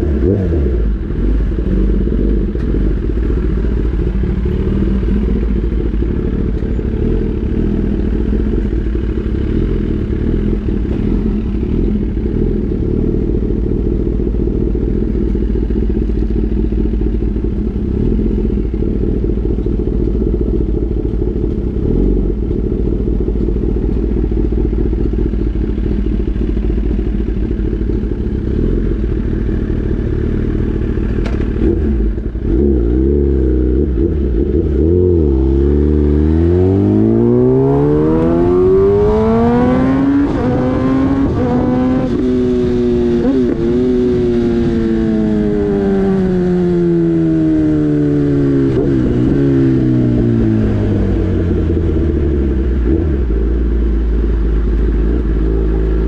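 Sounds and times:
motorcycle engine revving: 0.0s - 56.0s
low wind rumble: 30.7s - 55.4s.

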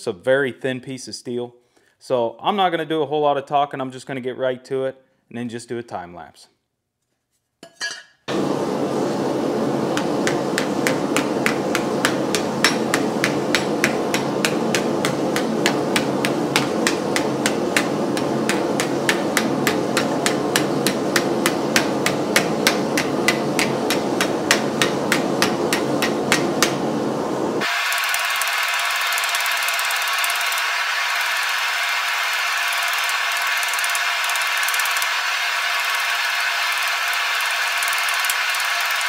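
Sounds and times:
steady background noise: 8.3s - 36.8s
hammer blows on hot steel: 8.3s - 39.0s.

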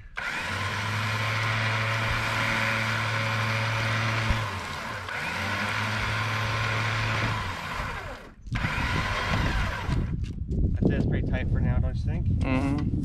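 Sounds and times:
electric winch humming: 0.0s - 10.1s.

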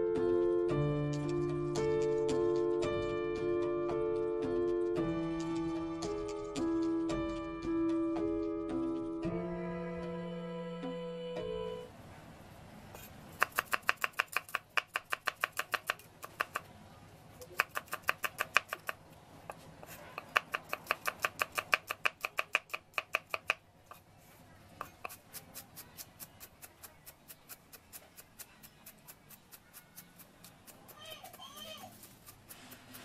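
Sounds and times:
cleaver chopping on wooden board: 13.4s - 16.6s, 17.5s - 19.0s, 19.8s - 23.6s.

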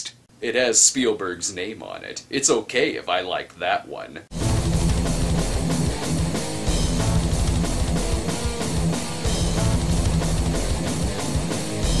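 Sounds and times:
rock music with drums and guitar: 4.3s - 12.0s.

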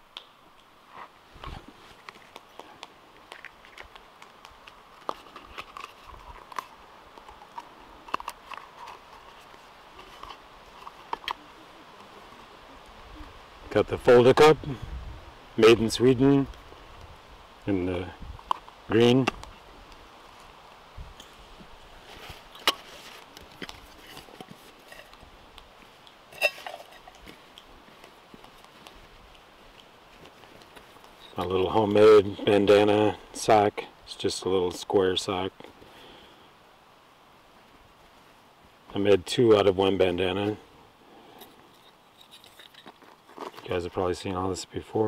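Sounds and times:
metal cookware clinking: 26.4s - 27.1s.

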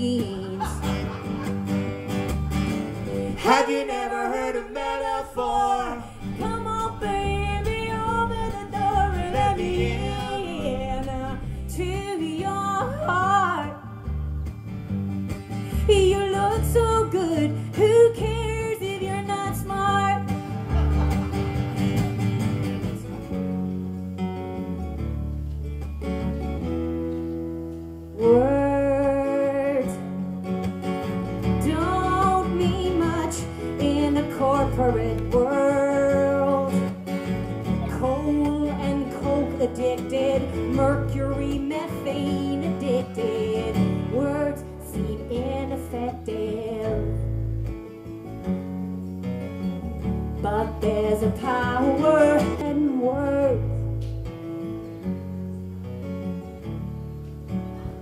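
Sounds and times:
acoustic guitars strummed: 0.0s - 58.0s
person singing: 3.2s - 14.1s, 28.2s - 30.3s, 31.6s - 47.2s, 50.4s - 53.9s.

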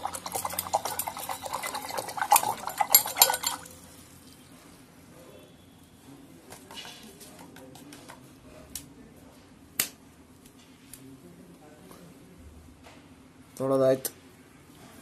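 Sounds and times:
brush clinking against metal pot: 0.0s - 4.4s.

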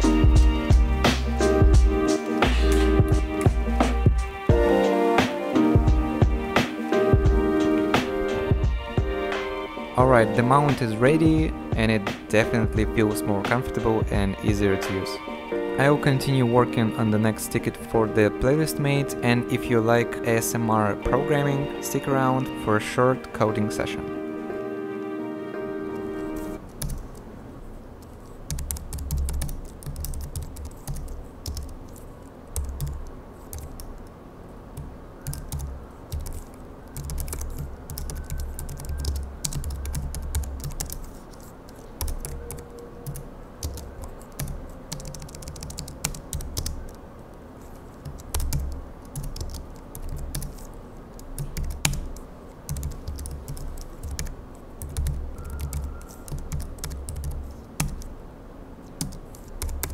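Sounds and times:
fast typing on computer keyboard: 26.8s - 27.2s, 28.0s - 34.1s, 34.8s - 47.0s, 48.0s - 58.1s, 59.0s - 59.9s.

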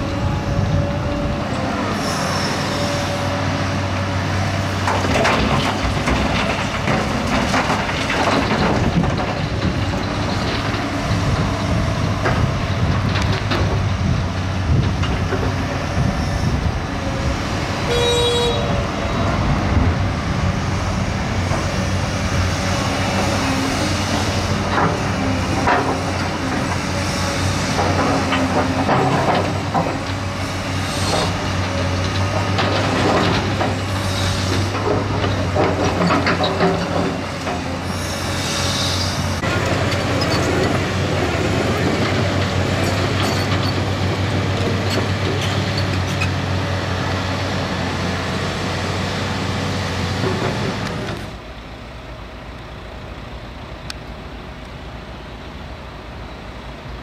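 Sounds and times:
diesel machinery engine running: 0.0s - 57.0s
metal clanks and squeals: 1.9s - 3.4s, 32.1s - 40.8s, 42.8s - 44.0s, 44.8s - 46.4s.

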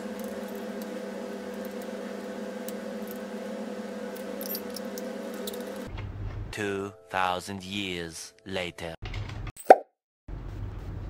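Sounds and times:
steady hum: 0.0s - 5.9s.

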